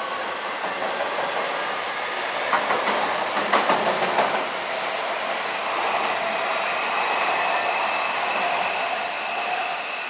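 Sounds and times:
train rumbling over steel bridge: 0.0s - 10.0s
wheels clacking over rail joints: 2.4s - 4.6s.

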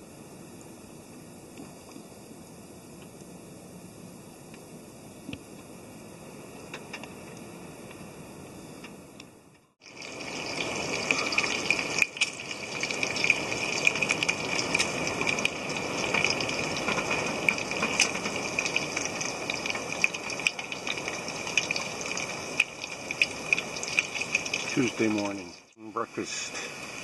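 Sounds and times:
bacon sizzling and crackling: 9.8s - 25.8s.

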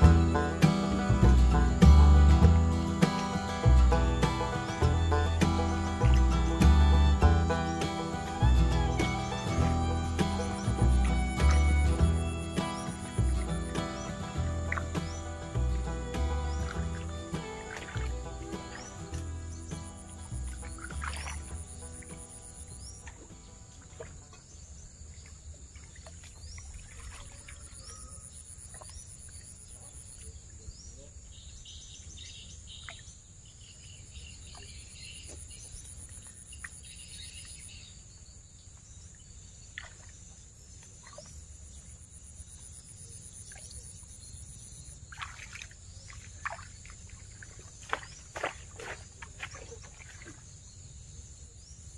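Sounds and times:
low steady rumble: 0.0s - 3.0s, 8.4s - 12.6s, 14.3s - 19.7s
pulsing insect trill: 0.0s - 23.6s
bird chirps: 0.0s - 51.9s.

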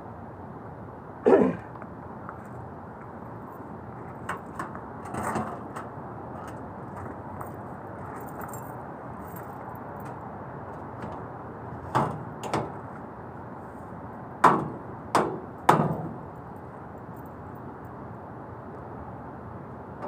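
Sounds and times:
knocks on sheet-metal casing: 11.9s - 12.8s, 14.4s - 16.2s.

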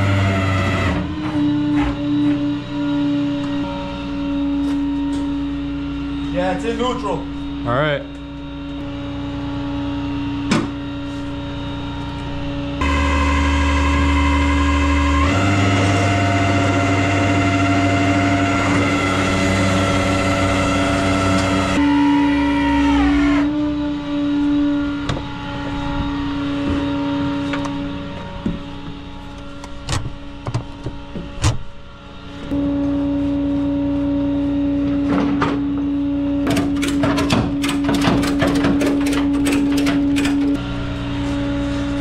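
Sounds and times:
tow truck engine humming: 8.2s - 21.8s, 23.6s - 42.0s.

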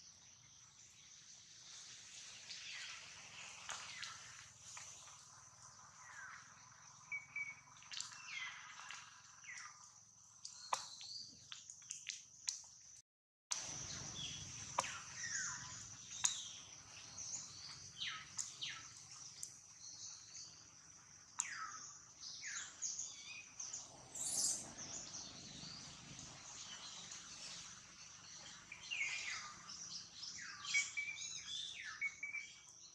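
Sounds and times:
bird chirps: 6.0s - 9.8s, 13.8s - 20.7s, 21.3s - 32.9s.

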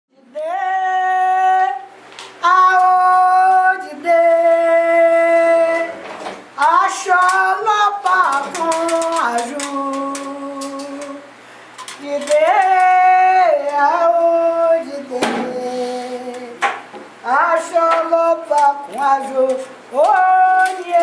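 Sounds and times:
woman singing a chant: 0.1s - 6.0s, 6.6s - 11.3s, 12.0s - 16.6s, 17.2s - 21.0s.

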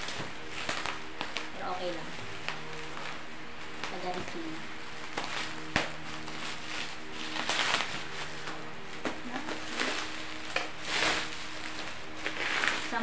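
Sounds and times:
bubble wrap crinkling: 0.0s - 13.0s.

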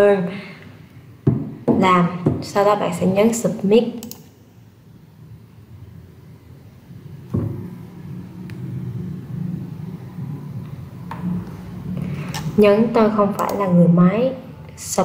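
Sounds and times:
low steady rumble: 4.5s - 15.0s.

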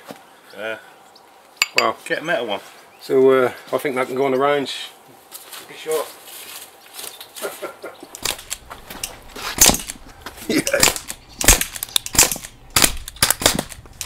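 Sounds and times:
air rifle shots: 8.2s - 8.7s, 9.5s - 10.1s, 10.8s - 14.0s.

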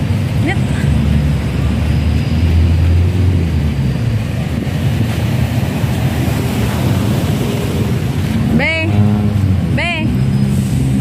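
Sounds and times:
road traffic: 0.0s - 11.0s
wind buffeting microphone: 3.1s - 8.6s.

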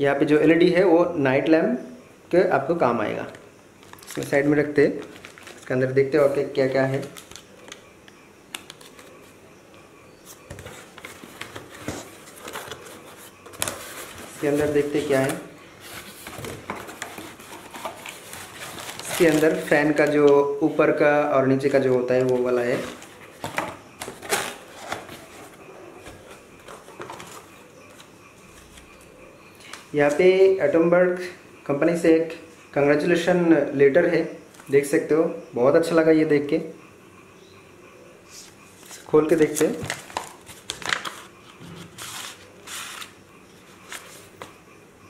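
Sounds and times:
cardboard and paper rustling: 5.0s - 7.8s, 10.3s - 20.4s, 21.6s - 28.8s, 38.8s - 44.6s.

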